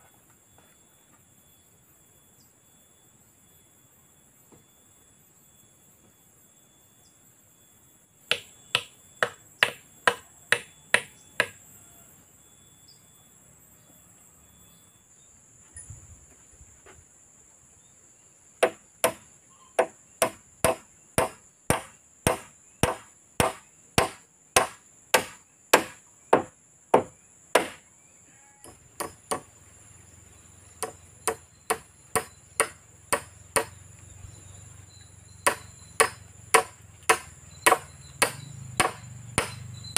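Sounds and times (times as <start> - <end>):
high insect drone: 0.0 - 39.9
hammer striking nails into wood: 8.3 - 11.6, 18.6 - 19.2, 19.8 - 27.8, 28.6 - 29.5, 30.8 - 33.7, 35.4 - 39.6.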